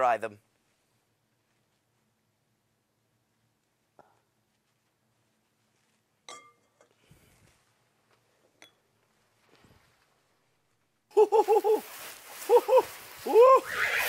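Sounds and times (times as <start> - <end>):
metal bowl clinking: 6.3 - 6.8
cloth rustling: 9.0 - 14.0
high whinny-like giggling: 11.1 - 14.0.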